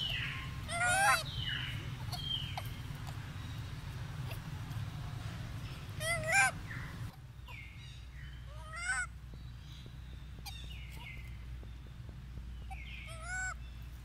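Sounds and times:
macaque high-pitched cries: 0:00.0 - 0:03.2, 0:05.9 - 0:07.6, 0:08.5 - 0:09.1, 0:12.7 - 0:13.6.

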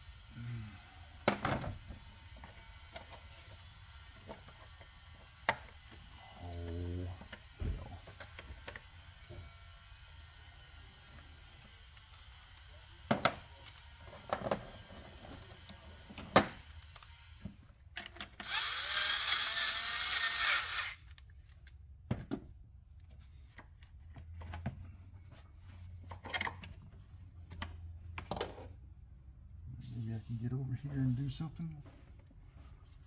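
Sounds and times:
parts clicking and knocking: 0:17.9 - 0:18.6.

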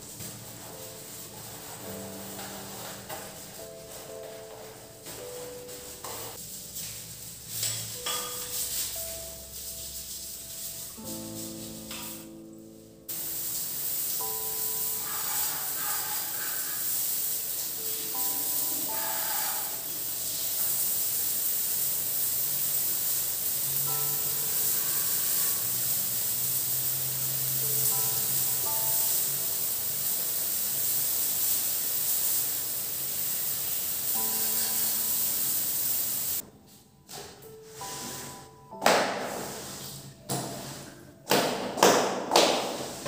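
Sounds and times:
water running onto tiles: 0:00.0 - 0:04.0, 0:05.6 - 0:12.3, 0:13.1 - 0:36.4
soft background music: 0:00.0 - 0:43.0.

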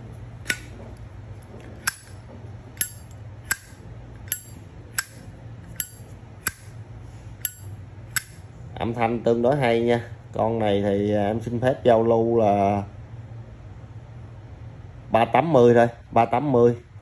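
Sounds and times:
lighter lid clicking open and shut: 0:00.5 - 0:00.7.

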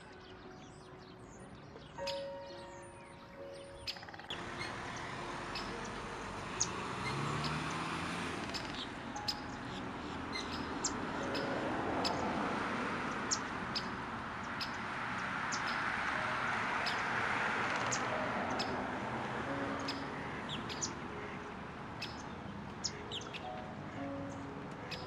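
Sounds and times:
high bird chirps: 0:01.8 - 0:07.9, 0:08.5 - 0:12.3.

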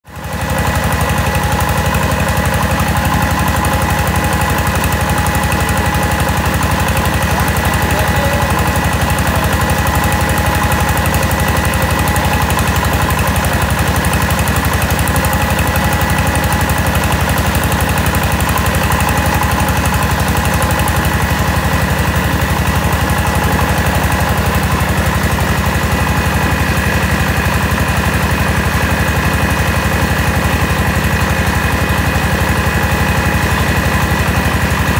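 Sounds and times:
engine beating: 0:00.1 - 0:34.9.

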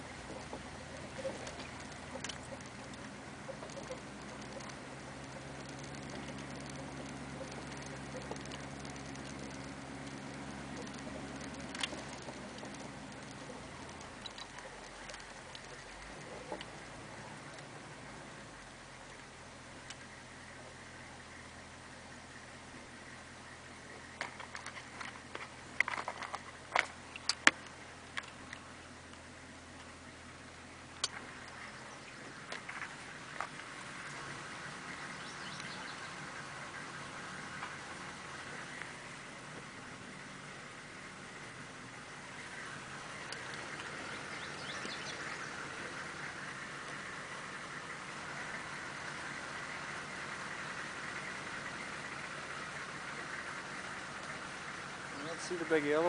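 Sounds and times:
diesel engine drone: 0:00.0 - 0:56.0
sharp clicks and knocks: 0:00.2 - 0:16.9, 0:24.2 - 0:29.2.

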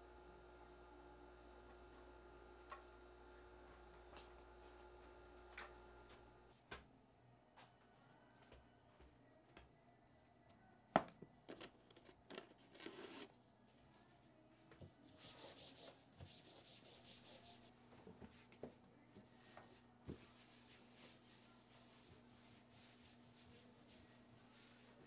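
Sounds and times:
rustling and rubbing: 0:19.2 - 0:25.0.

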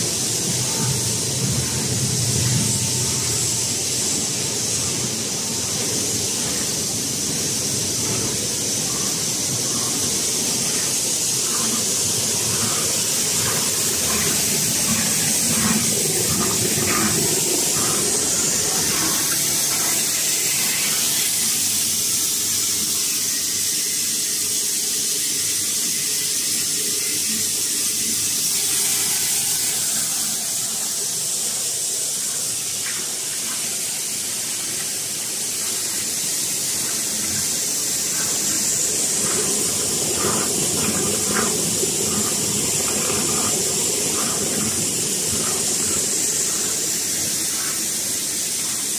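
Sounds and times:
low machine rumble: 0:00.0 - 0:21.6
machinery hiss: 0:00.0 - 0:48.9.

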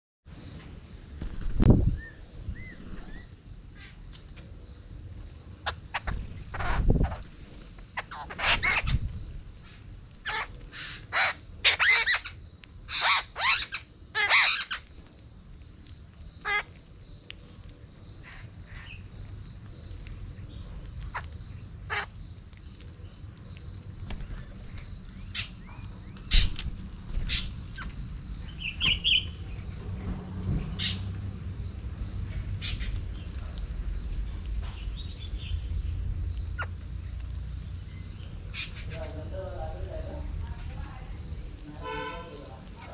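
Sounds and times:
low background rumble: 0:00.8 - 0:42.9
birds squawking: 0:05.6 - 0:14.9, 0:16.4 - 0:16.8, 0:18.2 - 0:19.1, 0:21.1 - 0:22.2, 0:23.7 - 0:29.7, 0:30.7 - 0:31.2, 0:32.0 - 0:33.3, 0:36.5 - 0:40.8.

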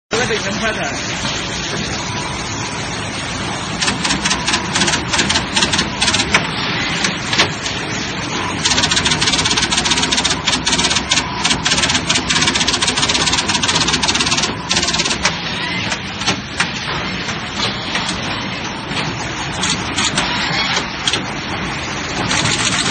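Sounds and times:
steady machine hum: 0:00.1 - 0:22.9
machine clicking rapidly: 0:03.8 - 0:07.7, 0:08.6 - 0:16.8, 0:19.5 - 0:21.4, 0:22.1 - 0:22.9.

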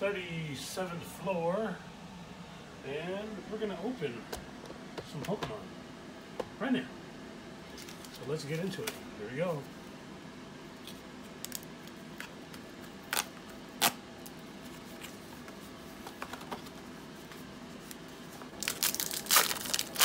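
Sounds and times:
wrapping crinkling and tearing: 0:17.8 - 0:20.0.

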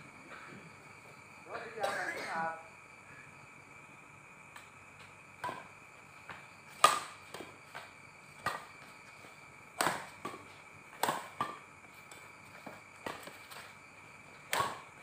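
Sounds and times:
rackets hitting shuttlecock: 0:04.5 - 0:05.7, 0:06.3 - 0:08.9, 0:09.8 - 0:13.7, 0:14.4 - 0:15.0.

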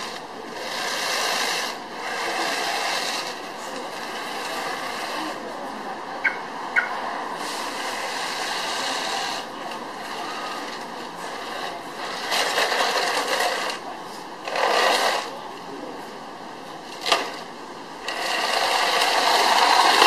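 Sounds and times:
small electric motors whirring: 0:00.0 - 0:05.4, 0:07.4 - 0:13.8, 0:14.4 - 0:15.4, 0:18.0 - 0:20.0
tracks rattling over pavement: 0:17.0 - 0:20.0.

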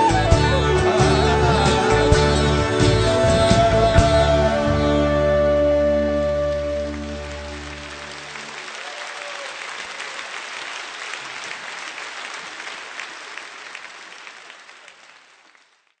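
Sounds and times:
audience applauding: 0:06.3 - 0:16.0.

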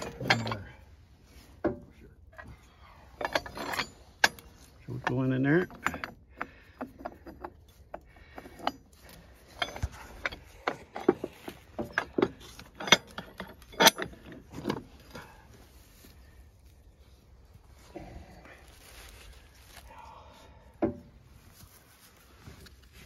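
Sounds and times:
heavy steel parts clinking: 0:00.0 - 0:16.9.

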